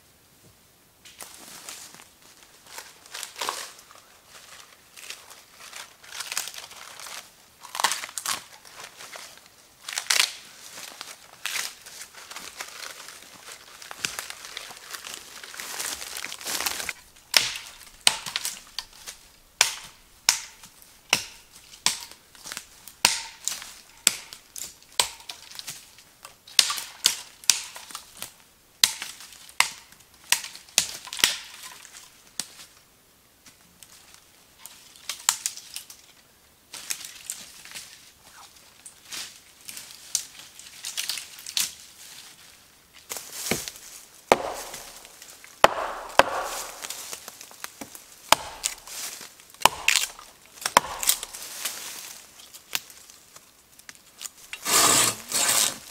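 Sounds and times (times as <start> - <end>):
footsteps crunching dry leaves: 1.2 - 24.6, 39.0 - 53.4
twigs snapping underfoot: 4.4 - 10.4, 11.4 - 32.6, 36.8 - 41.9, 43.0 - 54.6.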